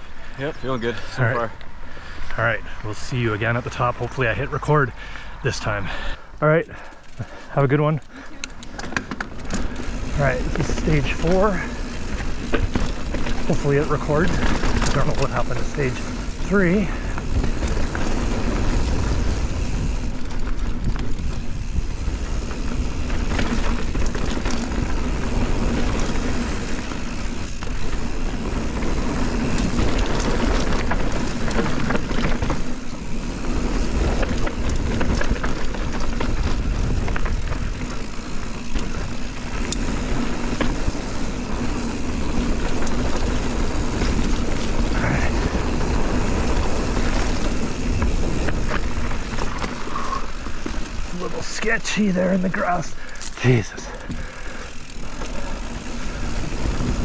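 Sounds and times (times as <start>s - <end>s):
bike rattling over bumps: 0.0s - 57.0s
tyres rolling on dirt: 0.0s - 57.0s
wind rushing over microphone: 15.9s - 51.1s, 54.8s - 57.0s.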